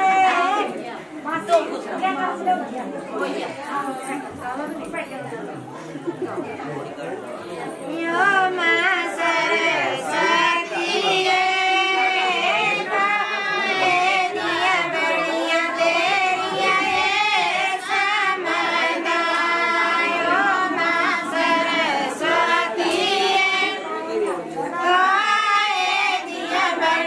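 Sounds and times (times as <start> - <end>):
women singing folk song: 7.9 - 27.0.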